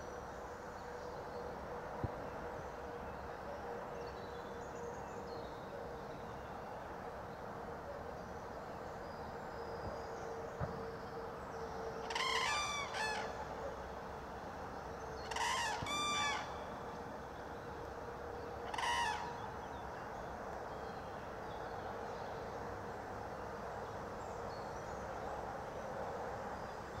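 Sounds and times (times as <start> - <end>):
cranes trumpeting calls: 12.0 - 13.6, 15.2 - 16.8, 18.6 - 19.5.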